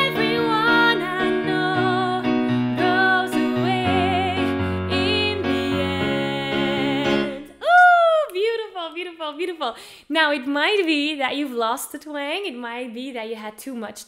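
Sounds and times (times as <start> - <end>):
sustained backing chords: 0.0 - 7.6
woman singing with vibrato: 0.0 - 9.7.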